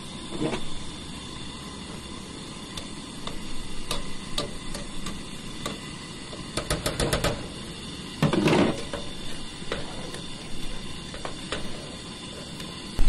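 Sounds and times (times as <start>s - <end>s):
camp stove burner hiss: 0.0s - 13.0s
liquid boiling: 0.0s - 13.0s
metal spatula scraping pot: 0.3s - 0.7s, 8.2s - 10.2s.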